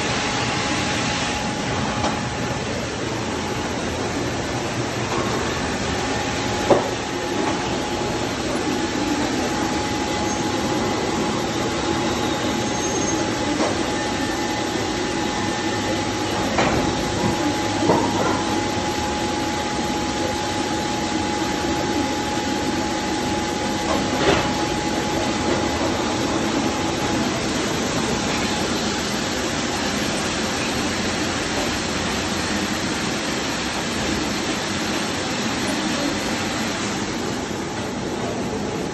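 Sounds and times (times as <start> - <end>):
gas burners and conveyor noise: 0.0 - 38.9
thin steady whine: 0.0 - 38.9.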